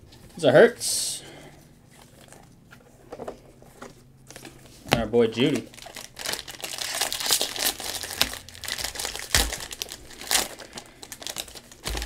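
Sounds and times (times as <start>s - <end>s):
plastic wrapper crinkling: 4.3s - 12.0s.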